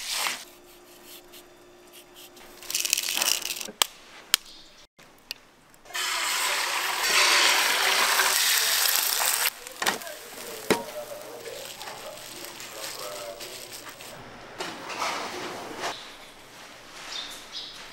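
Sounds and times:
egg sizzling on a griddle: 5.9 - 13.8.

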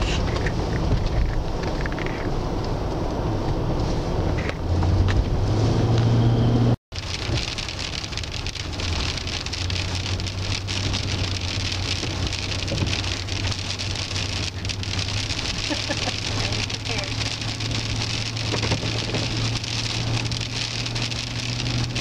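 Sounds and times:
rain on car windshield: 0.0 - 4.9, 6.9 - 22.0
engine and road hum: 0.0 - 22.0.

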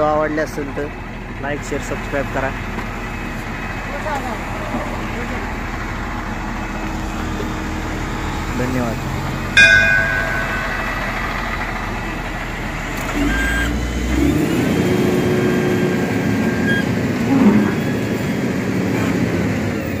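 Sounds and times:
diesel engine running: 0.0 - 20.0
thin steady whine: 4.0 - 12.8.

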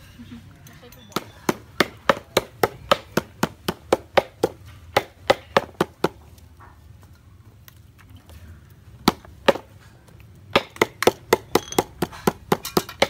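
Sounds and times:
wooden club pounding on chopping block: 1.2 - 6.2, 9.0 - 9.7, 10.5 - 13.0.

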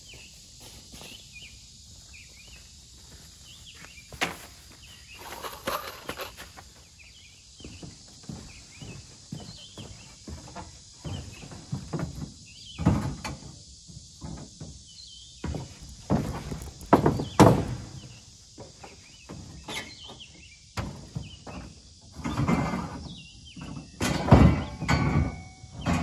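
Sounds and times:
footsteps on truck bed: 0.0 - 13.2, 15.4 - 19.7
metal clanks and knocks: 23.9 - 26.0.

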